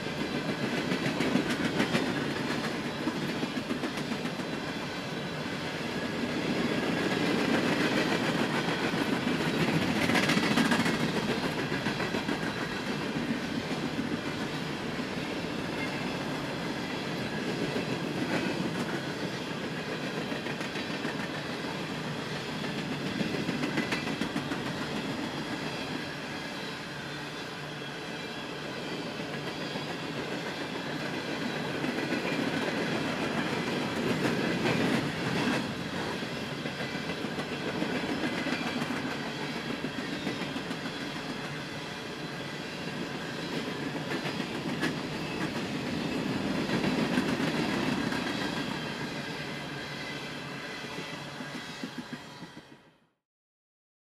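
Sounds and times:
freight train rolling past: 0:00.0 - 0:53.1
wheels clacking over rail joints: 0:06.0 - 0:21.8.

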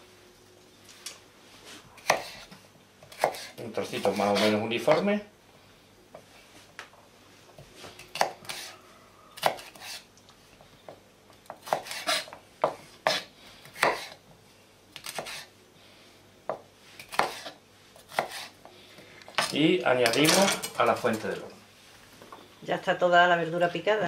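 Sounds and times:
knife chopping on plastic cutting board: 0:02.0 - 0:02.5, 0:03.1 - 0:05.1, 0:08.1 - 0:08.7, 0:09.4 - 0:10.0, 0:11.5 - 0:14.2, 0:16.5 - 0:18.5.

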